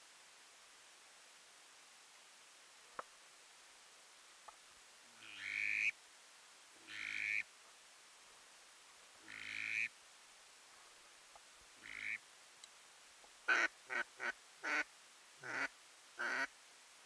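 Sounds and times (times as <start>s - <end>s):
duck quacking: 5.2s - 5.9s, 6.9s - 7.4s, 9.3s - 9.9s, 11.8s - 12.2s, 13.5s - 16.5s.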